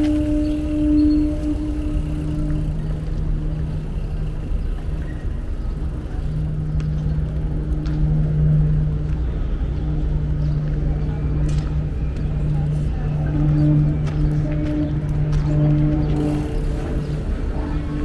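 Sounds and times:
engine humming: 0.0s - 18.0s
faint clicks: 6.6s - 9.3s.

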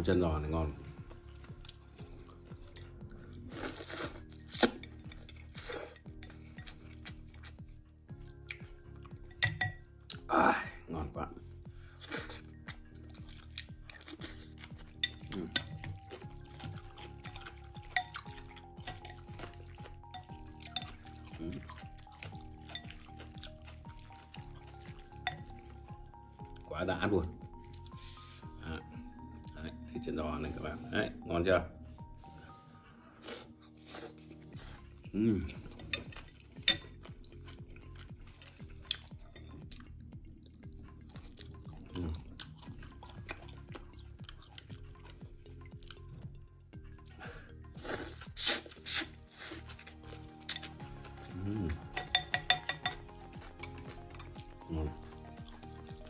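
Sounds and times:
background music with steady beat: 0.0s - 56.0s
chewing and wet mouth sounds: 0.2s - 10.4s, 11.1s - 30.8s, 31.8s - 56.0s
wet slurping of soup: 1.8s - 6.0s, 47.6s - 52.1s
utensils clicking against bowl: 52.0s - 53.0s.

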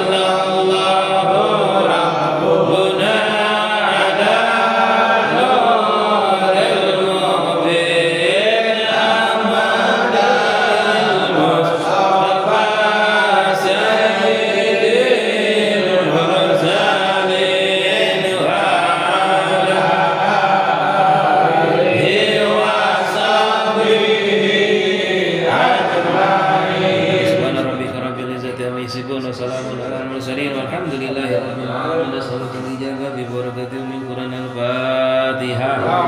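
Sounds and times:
voices chanting slow melody: 0.0s - 28.0s.

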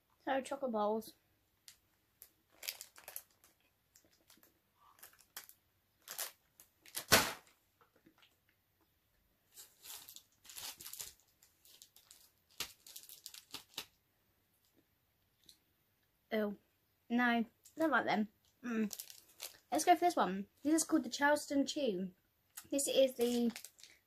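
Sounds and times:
plastic snack bag rustling: 1.6s - 7.5s, 9.5s - 14.0s, 18.7s - 20.1s, 23.0s - 24.0s.

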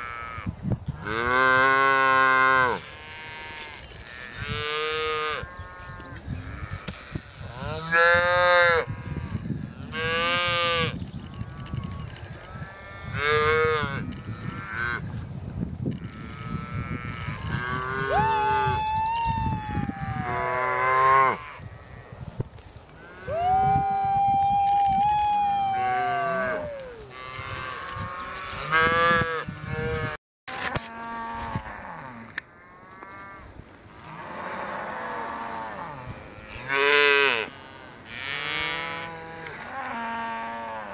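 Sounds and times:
cows and calves mooing: 0.0s - 15.1s, 15.9s - 18.6s, 19.6s - 22.3s, 25.7s - 30.2s, 30.8s - 40.9s
long high cow calls: 23.0s - 30.2s.

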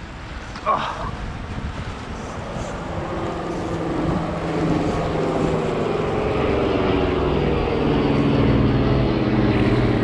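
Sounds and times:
wind noise on microphone: 0.0s - 10.0s
motor droning: 2.2s - 10.0s.

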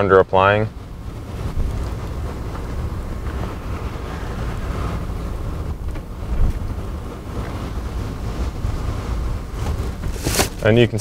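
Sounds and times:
truck road noise: 0.0s - 11.0s
wind rumbling on microphone: 0.0s - 11.0s.

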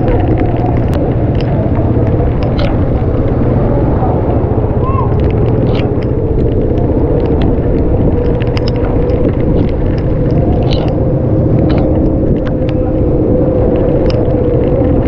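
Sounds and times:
engine running steadily: 0.0s - 15.0s.

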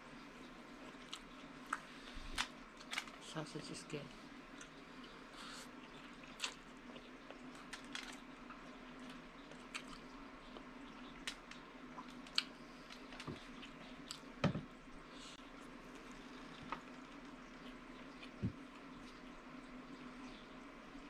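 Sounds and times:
person chewing wetly: 0.8s - 3.2s, 4.5s - 14.4s, 15.6s - 19.4s.

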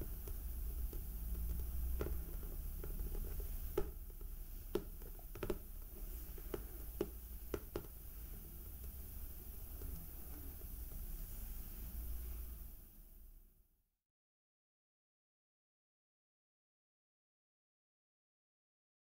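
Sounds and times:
steady low hum: 0.0s - 13.6s
fingernails tapping on hardcover book: 0.2s - 8.0s.

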